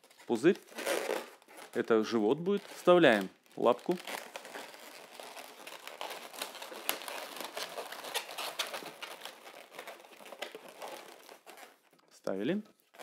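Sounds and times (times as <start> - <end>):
balloons squeaking and rubbing: 0.0 - 13.0.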